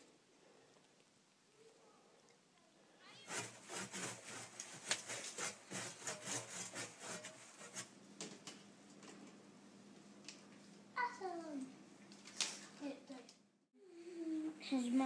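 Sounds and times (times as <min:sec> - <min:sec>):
hand saw cutting wood: 0:03.2 - 0:07.9.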